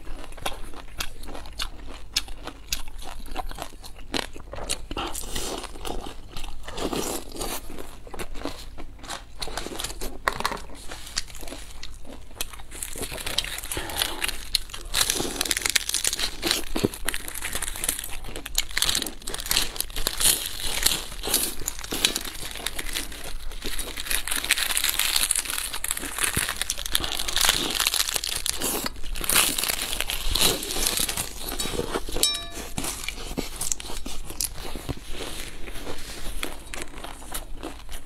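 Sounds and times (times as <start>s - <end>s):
crunching and chewing pastry: 0.0s - 38.0s
crisp pastry sheet crackling: 12.7s - 32.1s
plastic gloves crinkling: 12.8s - 18.0s, 21.6s - 33.1s.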